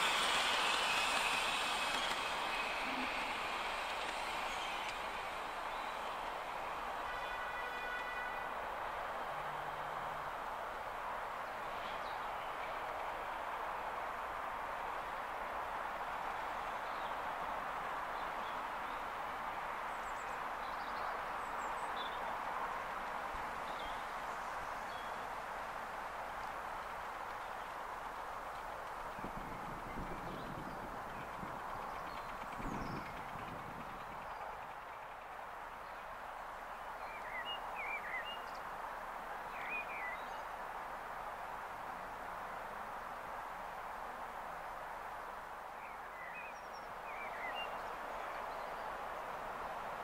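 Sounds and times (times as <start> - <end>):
miniature steam locomotive running: 0.0 - 7.4, 19.9 - 38.0
outdoor hiss: 0.0 - 29.8.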